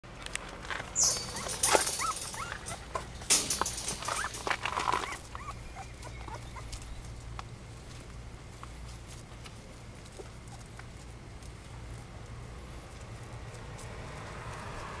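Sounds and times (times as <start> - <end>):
paws scraping on gravelly dirt: 0.1 - 15.0
puppy whimpering: 1.0 - 3.1, 3.7 - 6.9.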